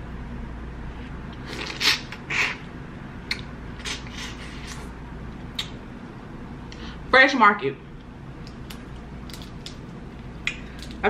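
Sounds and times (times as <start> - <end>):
wet slurps: 1.4 - 2.6.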